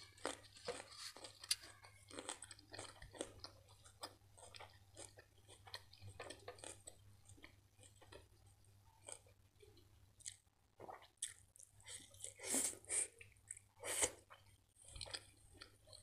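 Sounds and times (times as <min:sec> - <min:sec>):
chewing crunches: 0:00.0 - 0:08.3, 0:13.2 - 0:16.0.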